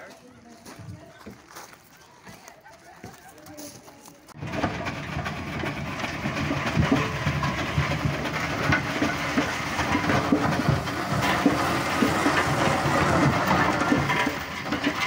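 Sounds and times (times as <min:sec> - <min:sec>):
steam roller mechanical clatter: 0:04.3 - 0:15.0.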